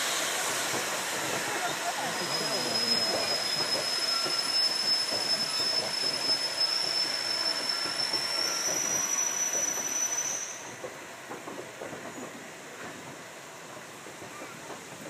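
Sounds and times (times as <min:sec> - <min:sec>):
train wheels squealing: 0:00.2 - 0:11.0.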